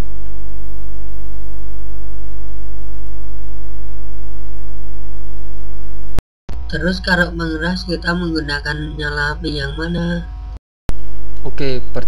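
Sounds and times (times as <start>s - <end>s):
electrical mains hum: 6.5s - 12.0s.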